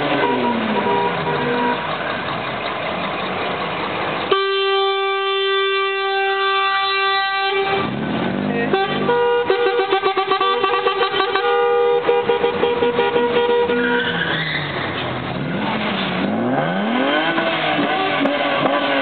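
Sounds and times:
vehicle noise: 0:00.0 - 0:19.0
vehicle horn steady note: 0:00.1 - 0:01.8, 0:04.3 - 0:07.9, 0:08.7 - 0:14.1.

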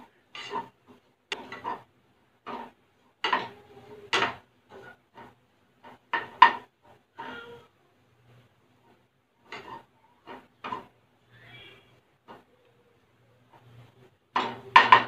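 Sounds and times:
spatula scraping frying pan: 0:00.0 - 0:11.0.

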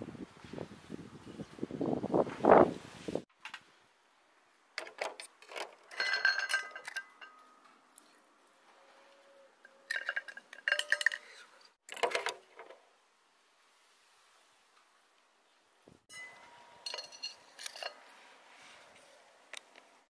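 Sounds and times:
tongs and shells clinking on steel can: 0:04.8 - 0:07.7, 0:09.6 - 0:12.7, 0:16.1 - 0:18.1.

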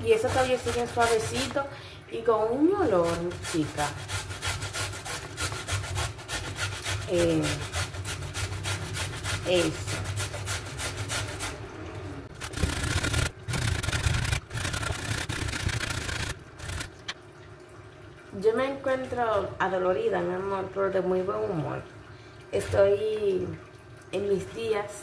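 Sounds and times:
carrot scraping on metal grater: 0:00.0 - 0:01.6, 0:02.8 - 0:11.6, 0:12.4 - 0:16.9.

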